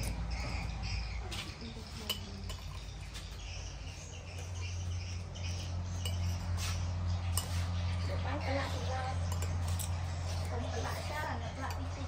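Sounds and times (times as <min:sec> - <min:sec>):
spoon clinking on ceramic plate: 0:01.9 - 0:03.0, 0:06.0 - 0:06.5, 0:09.2 - 0:10.1, 0:11.5 - 0:12.0.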